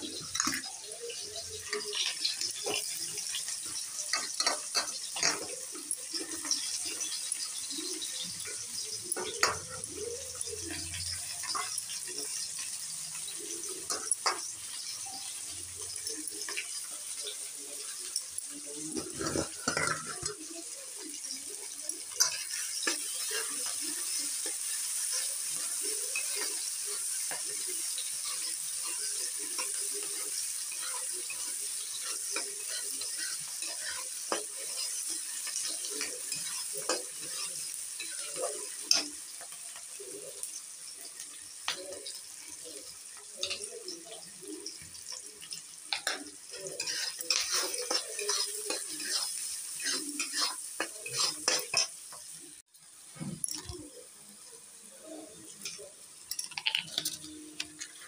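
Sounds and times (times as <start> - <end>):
onions sizzling in hot oil: 0.0 - 58.0
wooden spatula scraping pan: 46.0 - 51.9.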